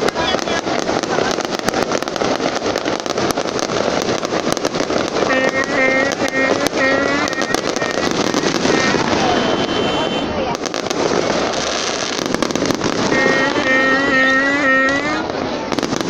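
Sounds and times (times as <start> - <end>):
fireworks bangs and crackles: 0.0 - 16.0
short pitched notes: 13.0 - 15.4.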